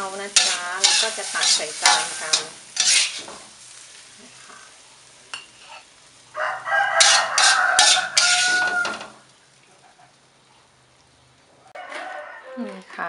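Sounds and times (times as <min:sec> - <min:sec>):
metal spatula scraping wok: 0:00.0 - 0:06.0, 0:06.8 - 0:09.2
rooster crowing: 0:06.3 - 0:09.2, 0:11.6 - 0:12.8.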